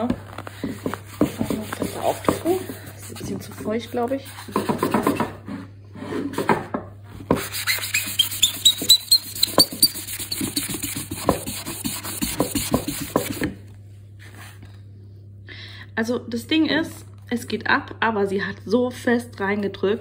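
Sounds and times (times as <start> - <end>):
sponge squeaking on wood: 0.0 - 5.1, 7.3 - 13.5.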